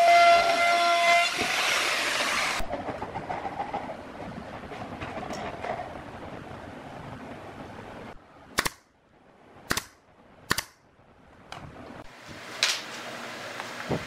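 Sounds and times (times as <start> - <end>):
nail gun shots: 8.6 - 8.9, 9.7 - 10.8
sharp click: 8.6 - 8.9, 9.7 - 10.8.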